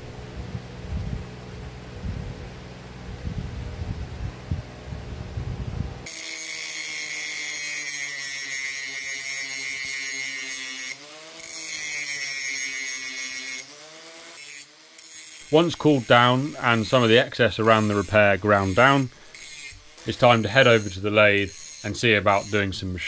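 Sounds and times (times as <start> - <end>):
angle grinder whining: 6.0 - 23.0.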